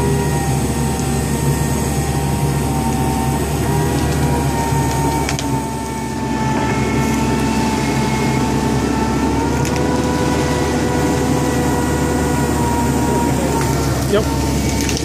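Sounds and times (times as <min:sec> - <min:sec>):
excavator engine drone: 0:00.0 - 0:15.0
high hydraulic whine: 0:00.0 - 0:15.0.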